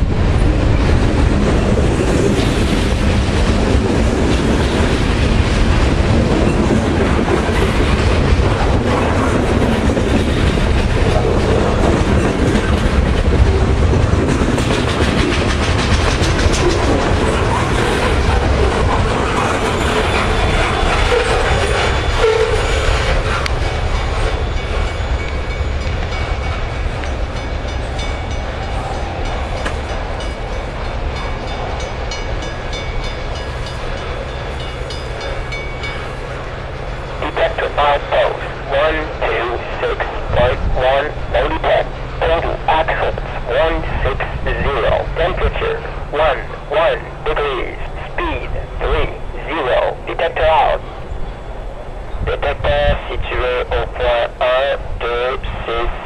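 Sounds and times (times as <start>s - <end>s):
train wheels on rails: 0.0s - 37.6s.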